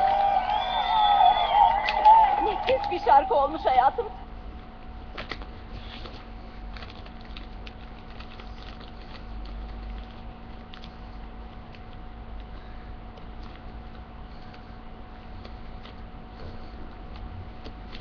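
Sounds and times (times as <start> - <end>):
electrical hum: 0.0 - 18.0
paper being handled and folded: 5.1 - 11.1.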